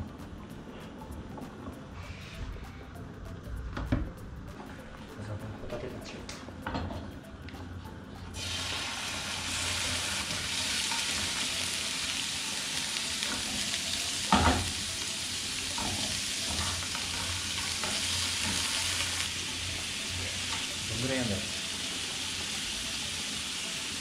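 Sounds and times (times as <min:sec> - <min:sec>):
food sizzling in a frying pan: 0:08.4 - 0:24.0.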